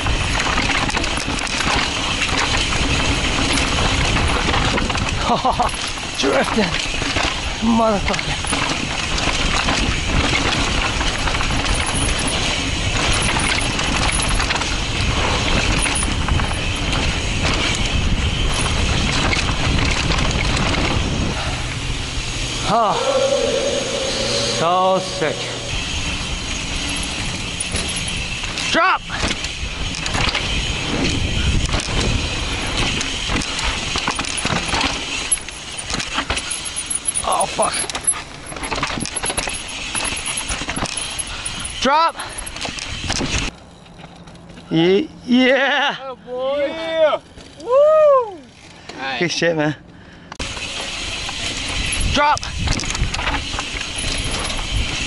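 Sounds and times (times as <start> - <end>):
bike tyres rolling over dirt: 0.0 - 22.5, 25.8 - 44.7, 50.4 - 55.0
bike rattling over bumps: 0.0 - 22.8, 25.7 - 44.8, 48.4 - 55.0
wind on microphone: 8.9 - 28.3.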